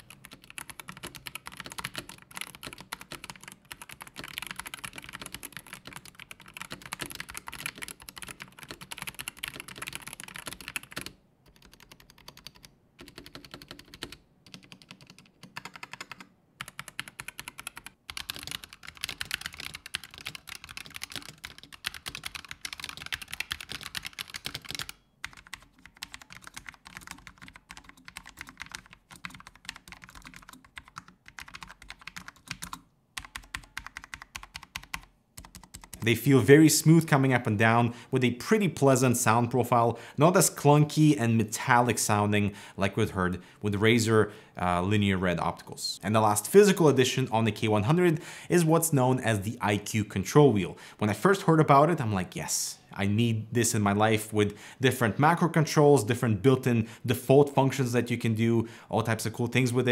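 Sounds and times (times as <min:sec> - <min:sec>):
keyboard typing: 0:00.0 - 0:36.2.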